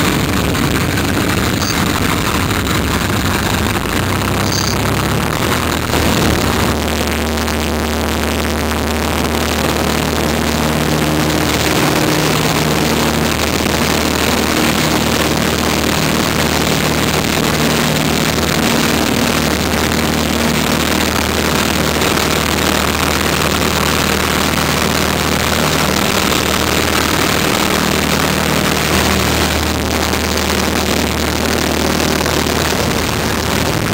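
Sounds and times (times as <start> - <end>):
airplane engine and propeller: 0.0 - 33.9.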